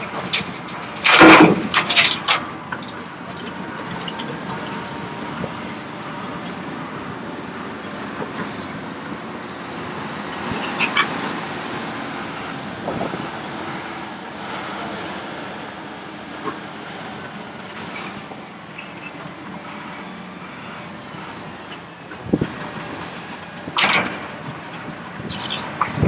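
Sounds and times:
excavator diesel engine: 0:00.0 - 0:26.0.

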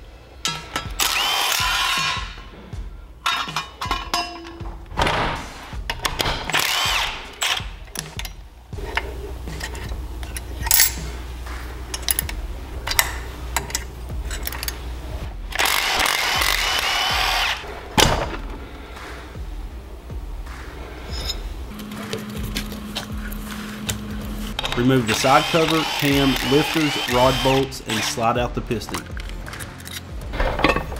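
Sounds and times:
cordless driver whining: 0:00.9 - 0:02.3, 0:06.4 - 0:08.1, 0:15.5 - 0:17.6, 0:21.7 - 0:28.2
metal tools clicking and clinking: 0:03.2 - 0:04.7, 0:07.3 - 0:11.1, 0:11.9 - 0:14.9, 0:28.8 - 0:30.9.

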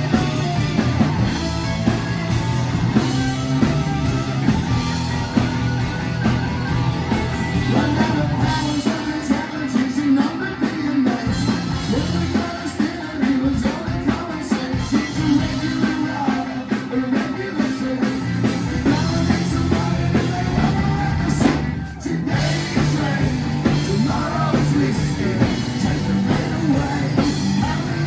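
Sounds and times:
live rock band playing: 0:00.0 - 0:28.0
man singing lead: 0:07.5 - 0:28.0.

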